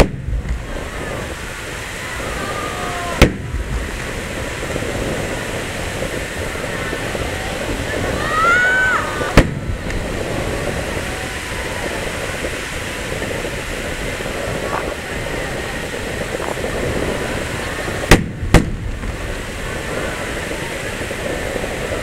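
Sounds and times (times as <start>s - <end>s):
fireworks booming: 0.0s - 22.0s.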